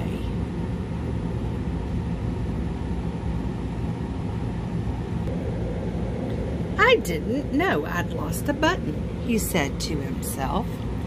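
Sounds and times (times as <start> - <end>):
low background rumble: 0.0 - 11.0.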